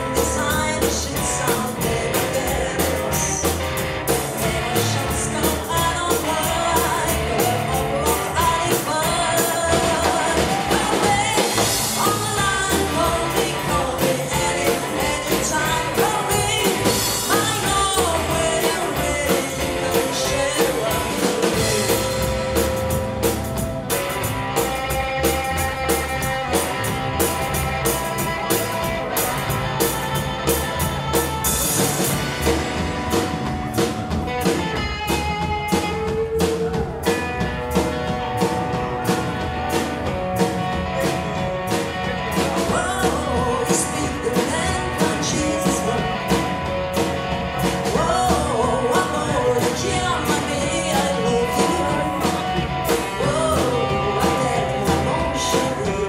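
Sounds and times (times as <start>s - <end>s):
woman singing: 0.0s - 23.3s, 39.7s - 56.0s
drum kit beat: 0.0s - 56.0s
electric guitar: 0.0s - 56.0s
upright double bass: 0.0s - 56.0s.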